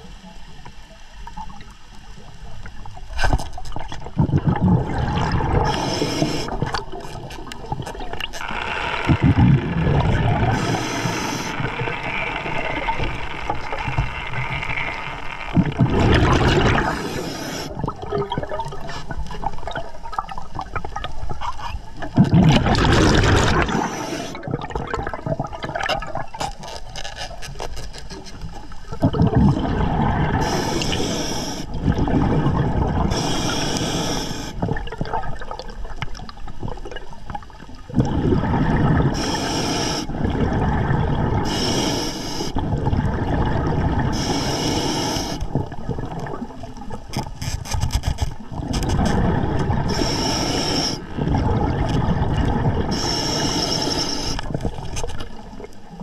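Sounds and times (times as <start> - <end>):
gurgling exhaled bubbles: 3.1 - 26.6, 28.8 - 47.4, 48.3 - 56.0
hissing regulator inhales: 5.6 - 6.7, 10.4 - 11.8, 16.7 - 17.8, 23.6 - 24.4, 30.4 - 31.8, 33.1 - 34.6, 39.1 - 40.2, 41.4 - 42.6, 44.1 - 45.5, 49.9 - 51.2, 52.9 - 54.6.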